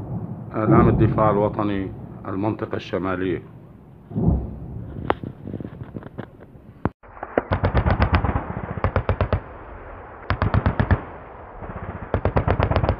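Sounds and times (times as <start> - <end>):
low rumble: 0.0 - 7.4
machine-gun fire bursts: 7.4 - 9.5, 10.3 - 11.1, 11.7 - 12.9.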